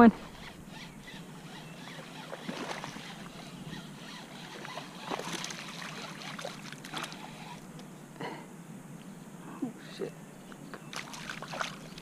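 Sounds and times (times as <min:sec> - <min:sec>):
fish splashing in water: 0:04.5 - 0:07.2, 0:10.9 - 0:12.0.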